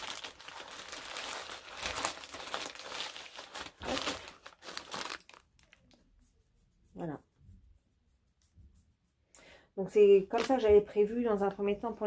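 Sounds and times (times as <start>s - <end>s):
paper bags crinkling: 0.0s - 5.9s.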